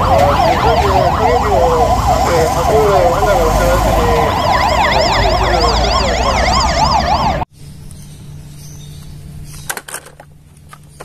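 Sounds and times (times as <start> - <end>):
fire engine sirens yelping: 0.0 - 7.5
engine rumble: 0.0 - 11.0.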